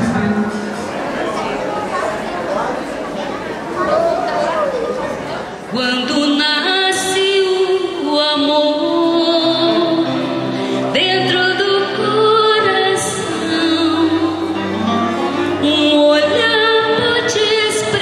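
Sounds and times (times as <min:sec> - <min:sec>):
woman singing through loudspeakers: 0:05.7 - 0:14.8, 0:15.4 - 0:18.0.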